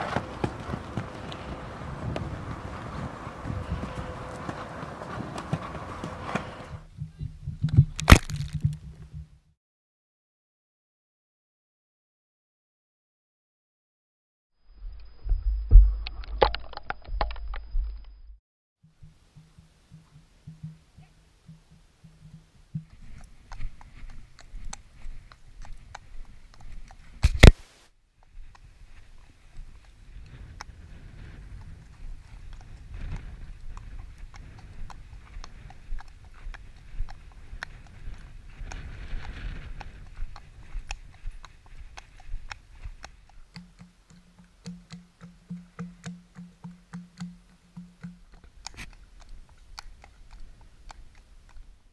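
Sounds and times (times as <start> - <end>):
horse hooves on tarmac: 0.0 - 6.9, 19.4 - 27.6, 28.2 - 51.8
low pulsing tone: 14.6 - 18.4.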